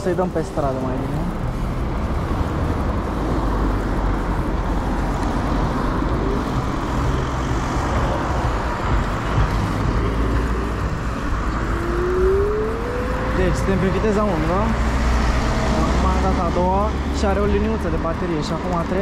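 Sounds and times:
wind rush on microphone: 1.3 - 17.5.

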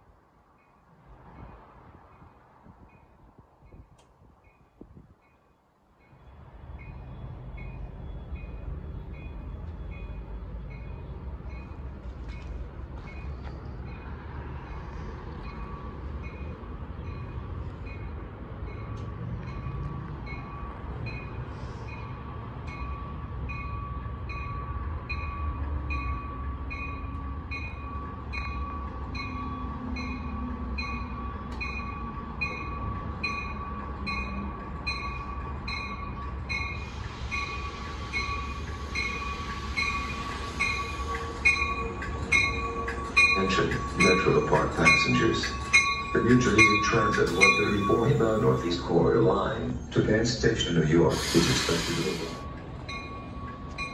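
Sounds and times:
rumble of train wheels: 0.0 - 53.9
train bell ringing: 4.5 - 53.9
hiss: 36.7 - 41.0, 51.1 - 52.4.

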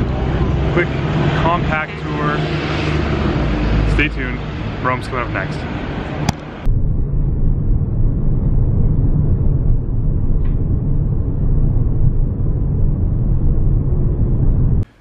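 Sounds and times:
airliner cabin engine rumble: 3.8 - 14.8.

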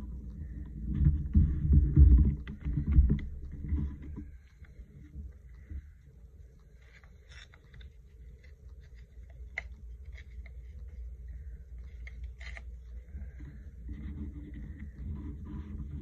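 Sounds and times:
low steady rumble: 0.0 - 16.0
paper rustling and clicks: 6.6 - 16.0.

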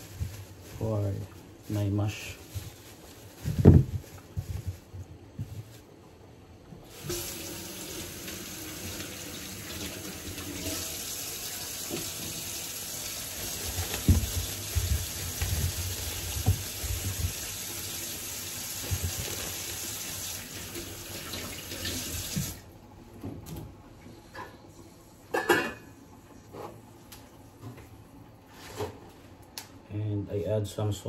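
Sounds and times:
potatoes knocking and bumping: 2.6 - 5.7, 13.6 - 17.4
tap running into a sink: 11.6 - 12.6, 20.7 - 22.6.

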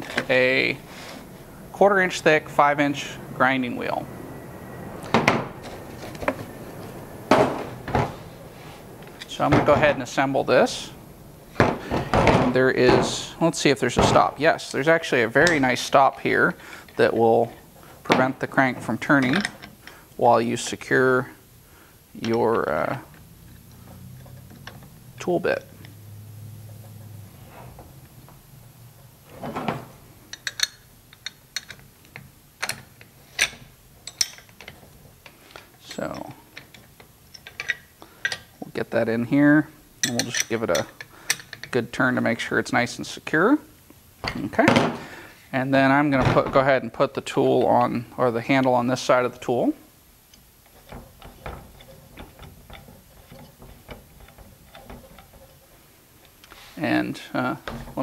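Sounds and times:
metal parts clicking and clinking: 19.2 - 20.0, 30.3 - 38.6, 40.0 - 41.8, 50.3 - 56.6.

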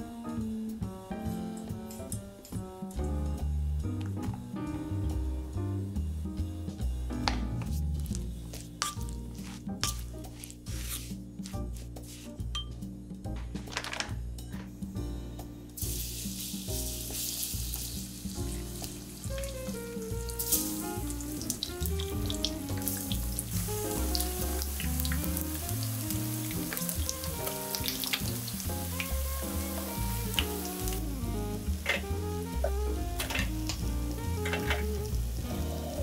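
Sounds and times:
background music: 0.0 - 36.0
chicken sizzling in oil: 15.8 - 36.0.

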